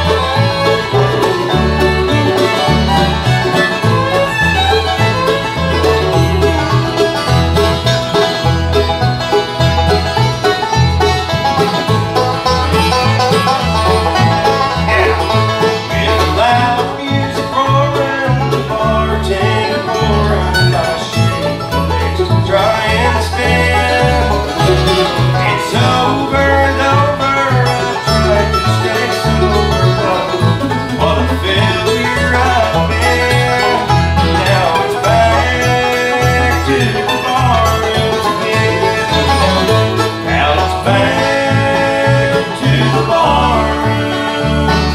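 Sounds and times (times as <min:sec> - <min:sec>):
bluegrass band playing: 0:00.0 - 0:44.9
steady bass line: 0:00.0 - 0:44.9.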